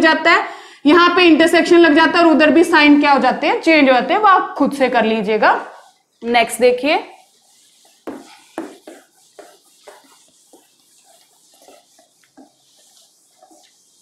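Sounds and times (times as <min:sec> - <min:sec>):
duster rubbing on whiteboard: 0:05.0 - 0:14.0.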